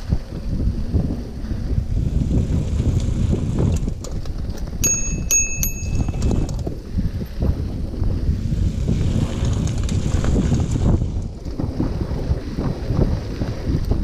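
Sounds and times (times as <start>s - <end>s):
low rumble of moving bike: 0.0s - 14.0s
bicycle bell dings: 4.8s - 6.6s.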